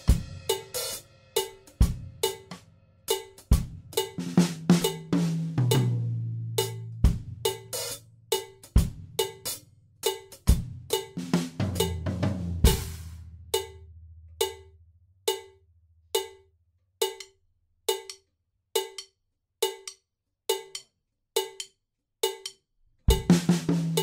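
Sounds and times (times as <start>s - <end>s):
drum kit playing: 0.0s - 14.7s, 15.3s - 15.6s, 16.2s - 16.4s, 17.9s - 18.2s, 23.1s - 24.0s
metronome click: 6.6s - 7.7s, 13.5s - 14.7s, 15.3s - 15.6s, 16.2s - 23.3s.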